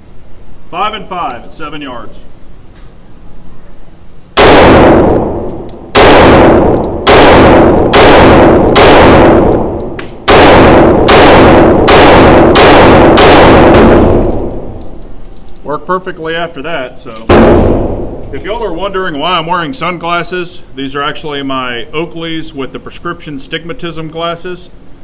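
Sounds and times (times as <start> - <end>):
gunshot echo indoors: 4.4 - 14.7, 17.3 - 18.3
pistol shots: 4.4 - 14.7, 17.3 - 18.2.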